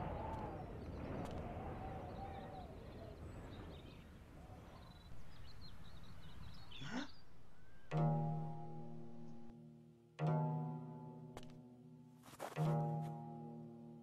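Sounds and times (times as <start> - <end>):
small birds chirping: 0.0 - 9.5
outdoor noise bed: 0.0 - 14.0.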